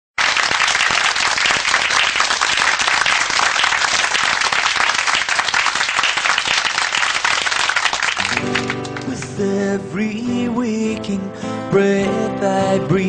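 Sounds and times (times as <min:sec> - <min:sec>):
audience applauding: 0:00.2 - 0:09.4.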